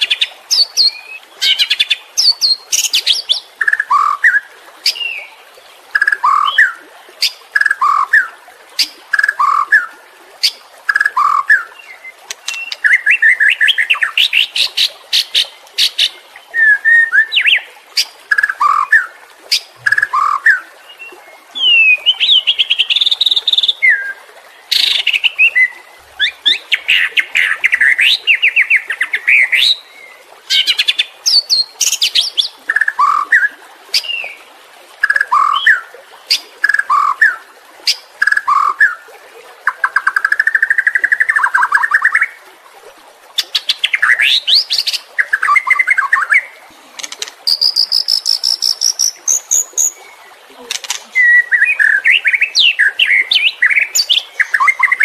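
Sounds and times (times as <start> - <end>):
bird singing whistled phrases: 16.5 - 17.6, 47.5 - 50.0, 51.1 - 55.0.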